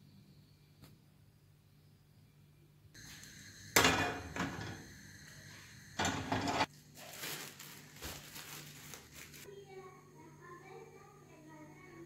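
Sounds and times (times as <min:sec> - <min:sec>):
cookware clanking on stove grates: 0:06.0 - 0:06.7.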